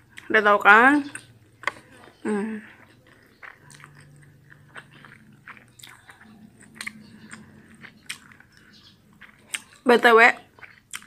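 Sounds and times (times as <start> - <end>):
person chewing: 0.0 - 0.3, 1.0 - 11.0
wet mouth clicks: 2.8 - 9.9, 10.6 - 11.0.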